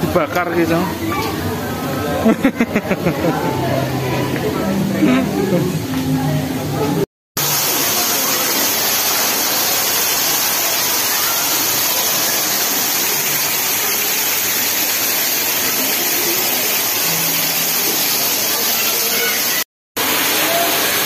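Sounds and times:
waterfall rushing: 7.4s - 21.0s.

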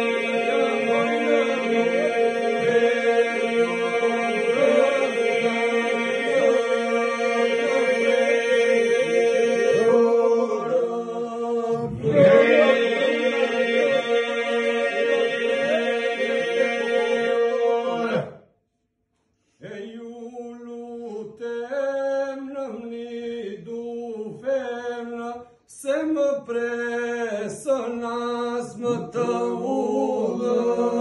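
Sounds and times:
male voices singing melody: 0.0s - 18.3s, 19.6s - 31.0s
men singing a steady drone: 0.0s - 18.3s, 26.5s - 31.0s.

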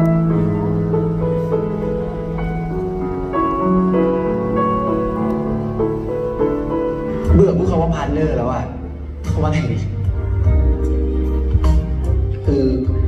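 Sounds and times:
slow soft background music: 0.0s - 13.0s.

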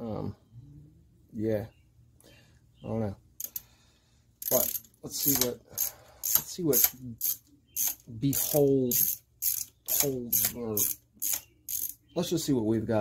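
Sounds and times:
ratchet wrench clicking: 3.4s - 3.6s, 4.4s - 12.0s.

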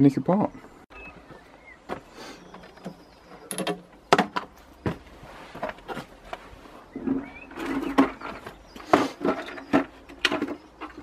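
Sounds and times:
hand tools knocking and clinking: 2.8s - 4.6s.

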